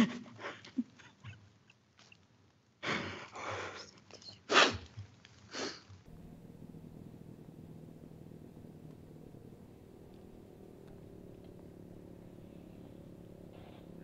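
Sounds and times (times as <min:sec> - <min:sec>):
low room hum: 0:00.0 - 0:14.0
person breathing heavily and sniffing: 0:05.5 - 0:05.9.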